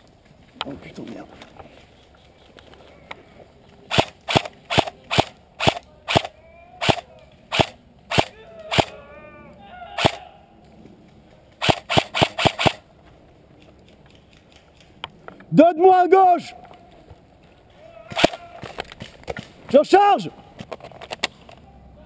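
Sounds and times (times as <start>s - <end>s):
airsoft rifle shots: 3.9s - 9.0s, 10.0s - 10.3s, 11.6s - 12.8s, 18.1s - 19.9s.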